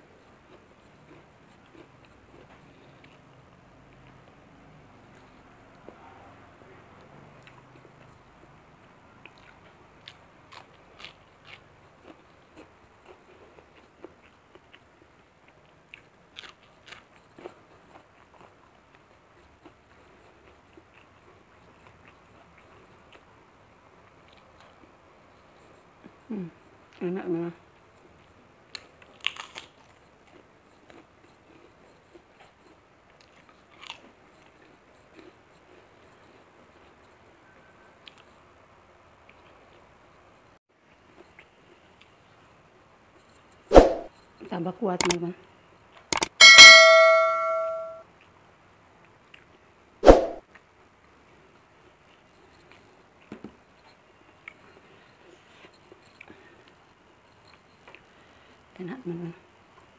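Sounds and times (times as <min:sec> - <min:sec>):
person chewing and crunching food: 0:00.0 - 0:06.0, 0:07.0 - 0:08.5, 0:09.2 - 0:26.2, 0:28.0 - 0:37.0
cracker crunching bites: 0:29.1 - 0:29.8.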